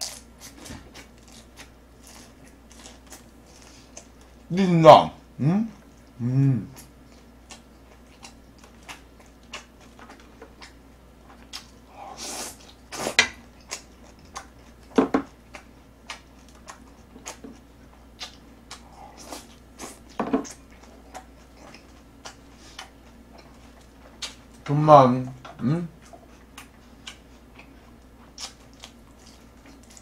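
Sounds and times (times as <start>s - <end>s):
chewing and mouth clicks: 6.8s - 11.8s, 12.5s - 24.6s, 25.4s - 30.0s.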